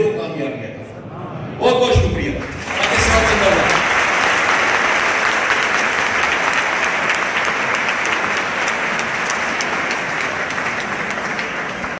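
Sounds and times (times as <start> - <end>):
audience applauding: 2.4 - 11.9.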